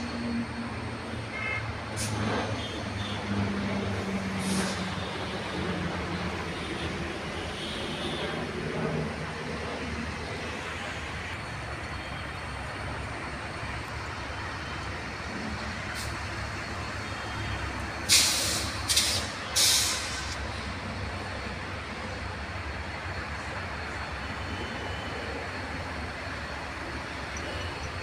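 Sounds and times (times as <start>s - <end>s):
distant traffic rumble: 0.0s - 28.0s
air brakes hissing: 4.2s - 5.4s, 15.8s - 16.4s, 17.7s - 20.6s.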